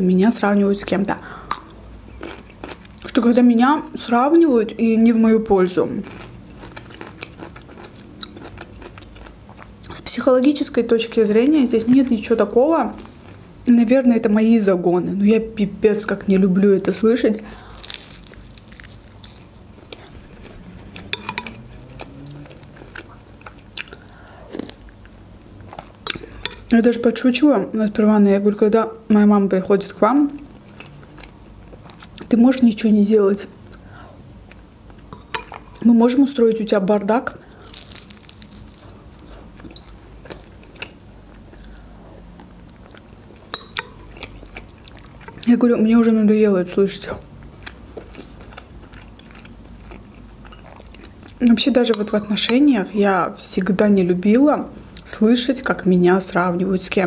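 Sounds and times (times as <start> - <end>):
chewing pastry: 1.5 - 3.3, 5.8 - 10.1, 17.2 - 24.9, 30.1 - 32.4, 37.3 - 45.6, 47.0 - 52.6.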